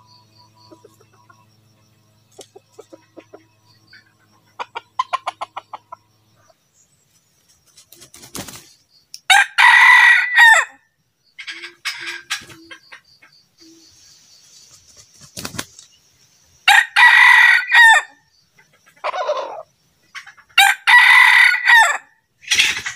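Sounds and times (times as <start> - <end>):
rooster clucking: 2.3 - 6.0, 11.4 - 13.4, 18.6 - 20.8, 21.9 - 22.9
wing flapping: 7.4 - 8.8, 14.4 - 16.0
rooster crowing: 9.3 - 10.8, 16.7 - 18.2, 20.6 - 22.1.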